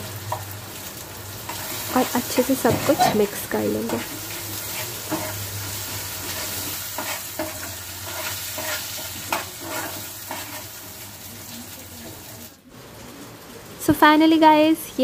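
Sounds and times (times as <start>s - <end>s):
food sizzling in a pan: 0.0s - 15.0s
utensil scraping a pan: 1.5s - 10.9s.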